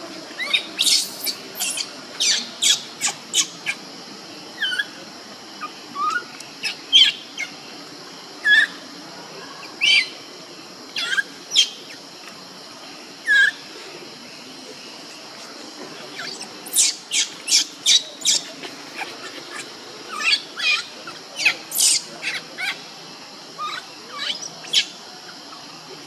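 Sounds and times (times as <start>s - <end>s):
baby monkey shrieking: 0.4s - 3.8s, 11.0s - 11.7s, 16.2s - 22.8s, 23.6s - 24.9s.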